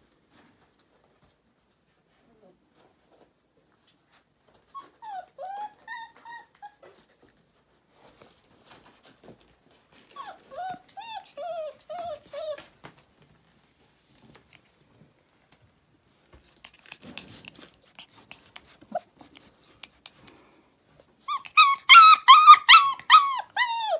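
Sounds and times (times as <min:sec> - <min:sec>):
faint scuffling and clicks: 0:00.0 - 0:05.0, 0:06.2 - 0:10.6, 0:12.2 - 0:20.4
puppies whimpering and whining: 0:04.7 - 0:07.1, 0:09.8 - 0:12.7, 0:21.2 - 0:23.9
puppies yelping: 0:21.3 - 0:23.9.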